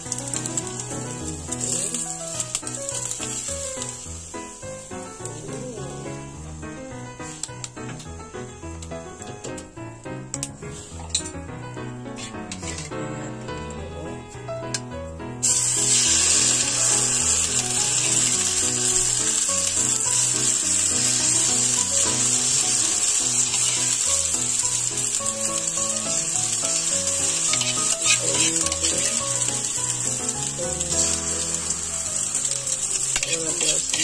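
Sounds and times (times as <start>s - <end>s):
batter sizzling in oil: 0.0s - 6.4s, 15.4s - 34.0s
background music: 0.0s - 34.0s.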